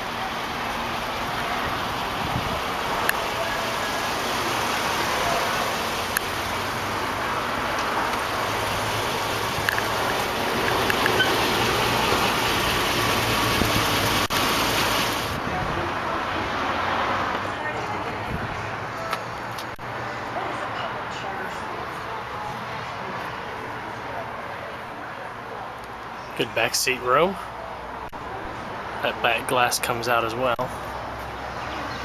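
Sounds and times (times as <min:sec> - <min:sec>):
road traffic noise: 0:00.0 - 0:32.0.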